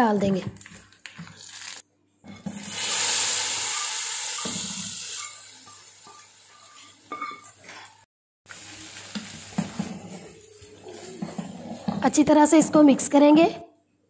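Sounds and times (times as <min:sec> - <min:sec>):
hot oil sizzling: 0:02.5 - 0:07.3, 0:08.5 - 0:10.2
ladle clinking on metal pot: 0:05.2 - 0:07.6.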